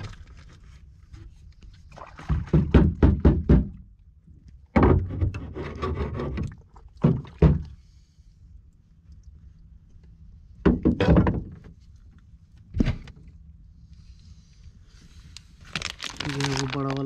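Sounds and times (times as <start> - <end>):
knocks and thuds: 2.2 - 3.8, 4.8 - 5.3, 7.0 - 7.7, 10.6 - 11.6.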